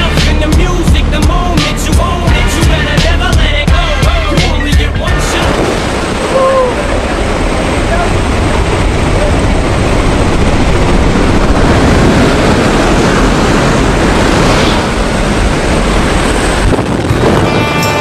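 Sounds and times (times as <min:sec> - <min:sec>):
plane engine: 0:00.0 - 0:18.0
wind rushing: 0:00.7 - 0:18.0
wind buffeting microphone: 0:05.0 - 0:18.0.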